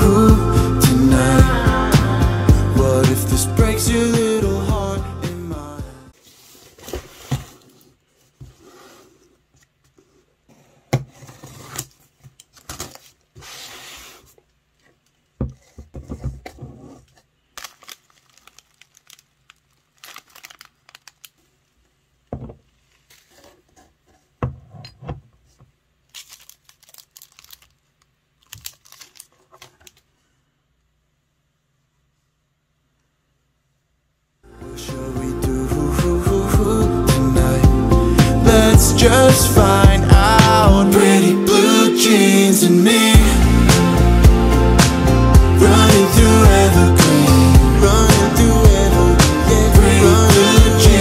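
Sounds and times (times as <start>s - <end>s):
cellophane crinkling: 17.4s - 22.0s, 26.0s - 30.1s.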